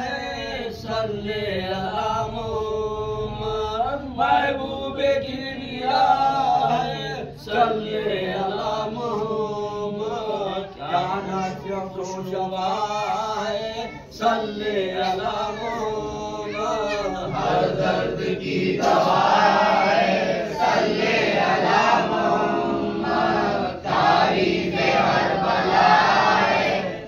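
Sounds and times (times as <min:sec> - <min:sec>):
man leading chant: 0:00.0 - 0:19.9
men chanting in group: 0:04.0 - 0:27.0.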